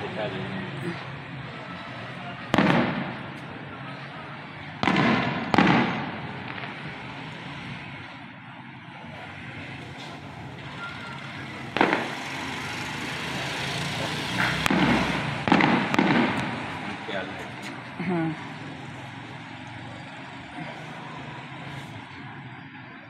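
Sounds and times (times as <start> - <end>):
firework booms: 2.5 - 3.4, 4.8 - 7.1, 11.7 - 12.6, 14.4 - 17.0
firework sharp cracks: 2.5 - 3.6, 4.6 - 7.7, 9.9 - 17.8.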